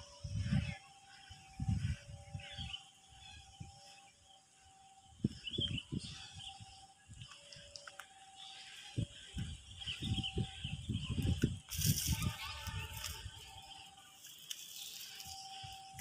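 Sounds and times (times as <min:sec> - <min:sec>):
wind gusts on microphone: 0:00.0 - 0:03.9, 0:05.1 - 0:07.3, 0:08.9 - 0:13.8
birds chirping: 0:00.0 - 0:16.0.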